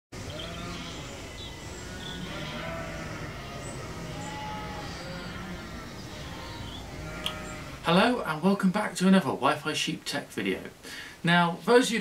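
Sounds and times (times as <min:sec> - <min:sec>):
sheep bleating: 0:00.2 - 0:07.9
low background noise: 0:00.2 - 0:12.0.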